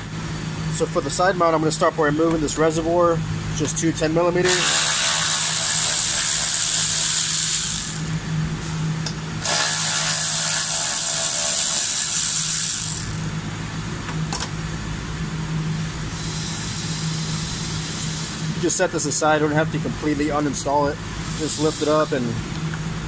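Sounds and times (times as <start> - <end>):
steady low hum: 0.0 - 23.0
power ratchet running: 4.4 - 8.2, 9.4 - 13.4.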